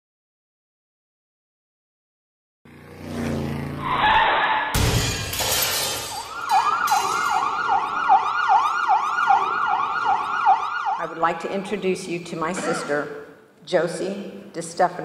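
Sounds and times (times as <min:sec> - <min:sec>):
siren yelping: 0:03.8 - 0:04.7, 0:06.2 - 0:11.4
car crash impact: 0:04.7 - 0:07.4
glass and debris shattering: 0:04.8 - 0:07.4.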